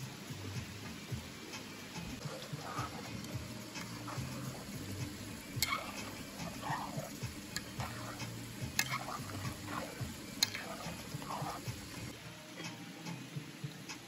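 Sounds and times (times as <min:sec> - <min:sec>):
soup bubbling: 0:02.0 - 0:12.2.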